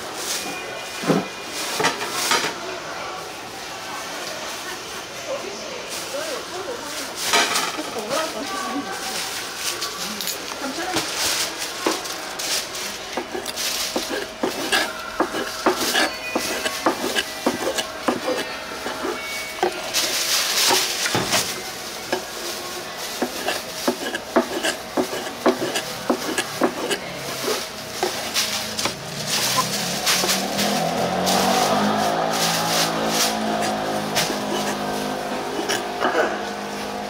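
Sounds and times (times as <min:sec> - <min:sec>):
cutlery and crockery clattering: 0:07.2 - 0:08.0.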